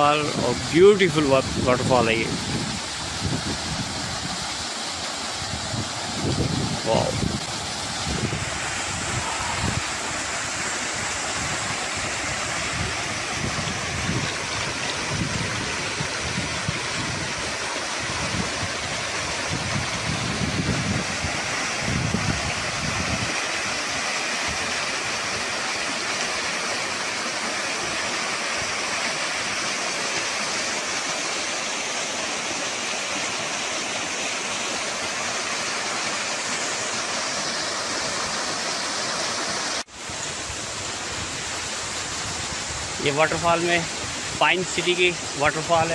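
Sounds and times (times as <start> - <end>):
waterfall rushing and splashing: 0.0 - 45.9
wind buffeting microphone: 1.4 - 4.5, 5.4 - 23.4.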